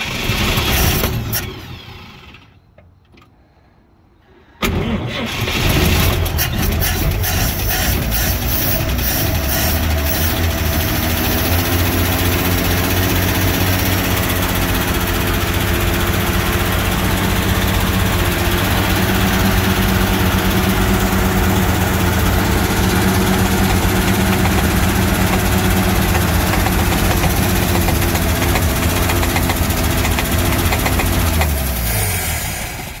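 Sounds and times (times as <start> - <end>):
truck engine idling: 6.2 - 33.0.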